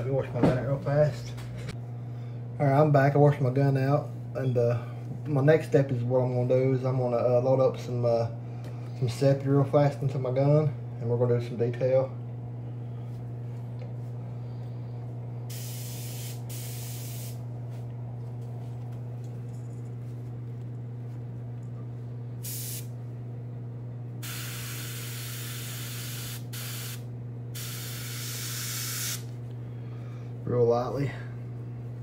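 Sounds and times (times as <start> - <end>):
air compressor humming: 0.0 - 32.0
airbrush spraying hiss: 15.5 - 17.4, 22.4 - 22.9, 24.2 - 27.0, 27.6 - 29.3.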